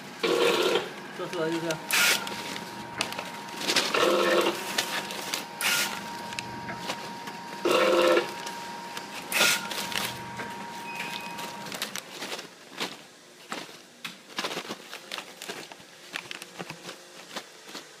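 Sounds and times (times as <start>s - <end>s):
loud buzzing tone: 0.0s - 1.0s, 1.6s - 11.7s
plastic pouches crinkling: 1.2s - 18.0s.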